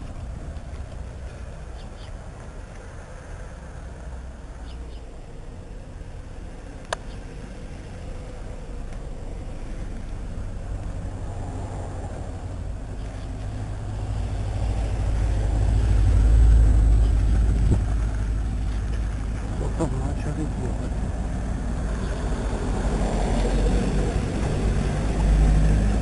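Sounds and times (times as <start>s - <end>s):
car driving past slowly: 0.0s - 26.0s.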